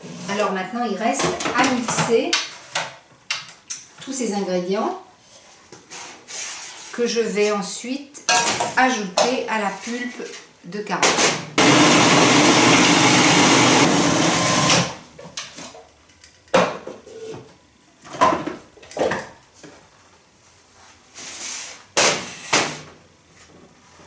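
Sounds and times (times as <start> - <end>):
food processor grinding: 11.6 - 15.0.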